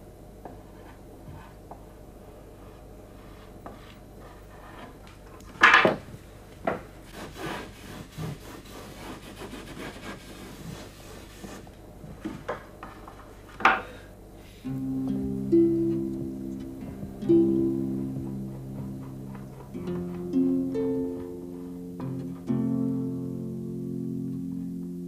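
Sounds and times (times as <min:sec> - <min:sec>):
brush strokes on canvas: 0:00.6 - 0:05.0, 0:07.0 - 0:11.7.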